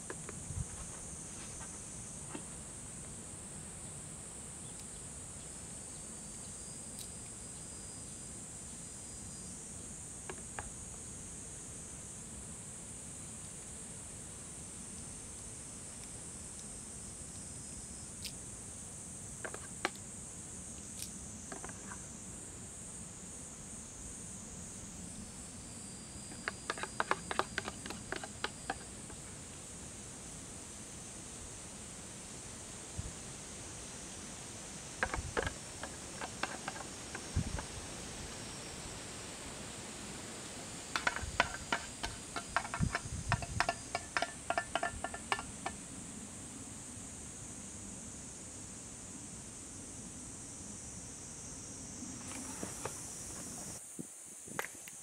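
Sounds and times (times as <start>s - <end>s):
insect chorus: 0.0s - 55.0s
utensils clicking on metal plate: 26.3s - 29.1s, 35.0s - 37.3s, 41.0s - 45.8s
utensils clicking on metal: 41.0s - 45.8s.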